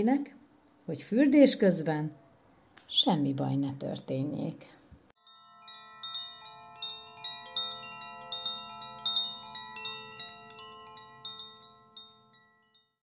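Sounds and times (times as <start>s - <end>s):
wind chimes ringing: 5.2s - 13.0s.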